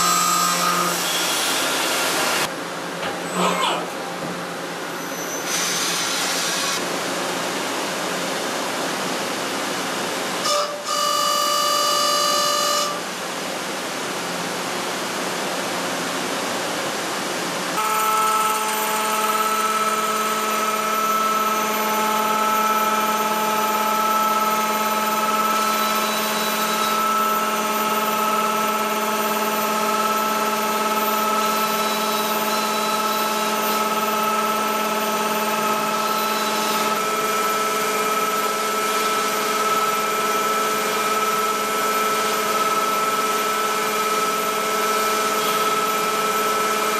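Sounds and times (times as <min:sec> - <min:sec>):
machine whine: 0:17.8 - 0:46.9.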